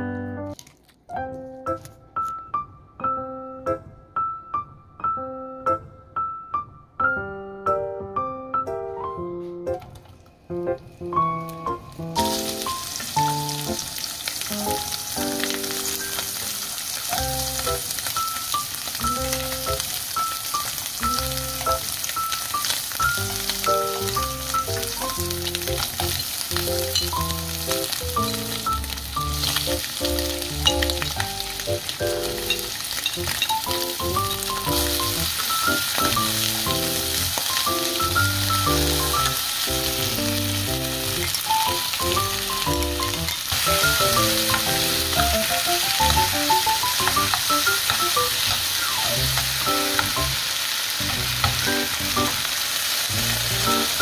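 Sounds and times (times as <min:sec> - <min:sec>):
piano background music: 0:00.0 - 0:54.0
food sizzling in oil: 0:11.9 - 0:54.0.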